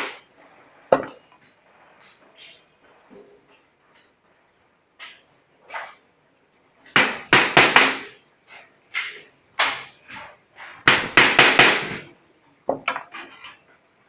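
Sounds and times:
hammer striking sheet metal: 0:07.0 - 0:08.2, 0:10.8 - 0:12.1.

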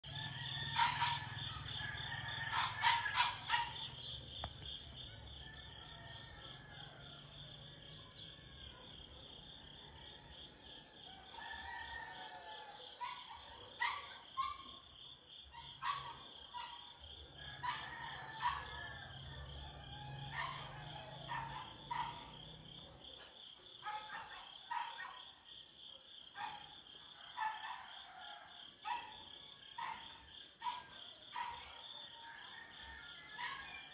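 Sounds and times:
distant roosters crowing: 0:00.0 - 0:08.8, 0:09.6 - 0:13.2, 0:17.3 - 0:22.7, 0:31.4 - 0:33.9.

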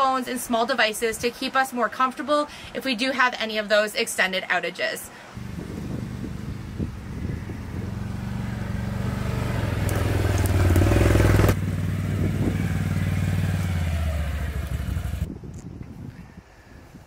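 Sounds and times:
quad bike engine running: 0:05.4 - 0:15.3.

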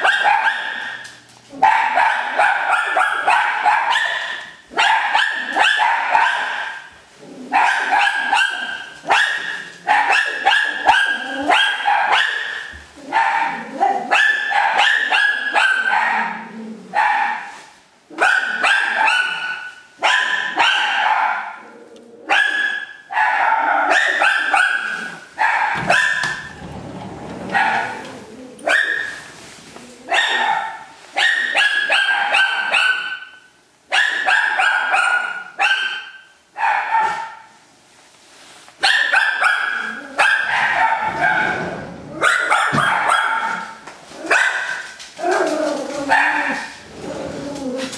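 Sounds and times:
dog barking: 0:00.0 - 0:01.0, 0:01.6 - 0:06.9, 0:07.5 - 0:17.6, 0:18.2 - 0:21.6, 0:22.3 - 0:26.6, 0:27.5 - 0:29.2, 0:30.1 - 0:37.5, 0:38.8 - 0:45.0, 0:46.1 - 0:46.8.

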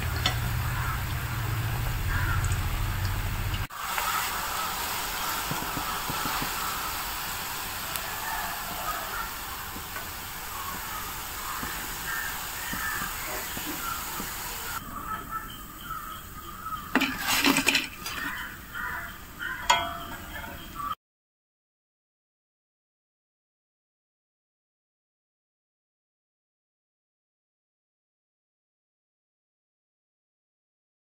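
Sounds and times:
food sizzling in hot oil: 0:00.0 - 0:14.8, 0:16.9 - 0:18.8
metal skimmer clinks and knocks: 0:16.9 - 0:18.4, 0:19.7 - 0:20.2.

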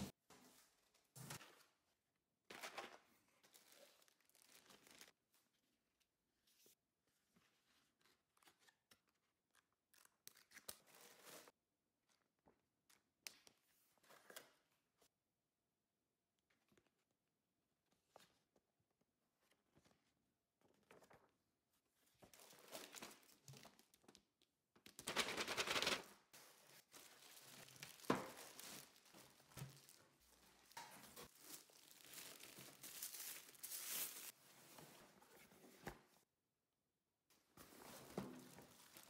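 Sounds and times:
packaging rustling and crinkling: 0:26.4 - 0:34.4, 0:37.6 - 0:39.0.

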